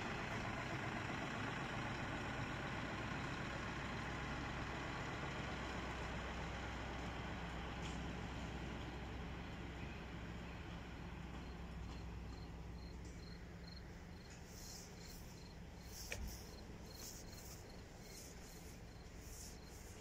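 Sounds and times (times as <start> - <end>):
faint high insect chirp: 9.8 - 20.0
low steady hum: 10.9 - 20.0.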